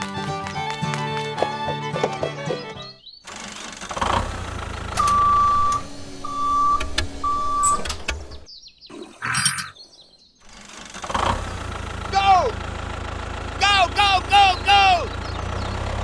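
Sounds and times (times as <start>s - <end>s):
tractor engine running: 0.0s - 8.5s, 10.4s - 16.0s
reversing alarm beeps: 5.0s - 7.9s.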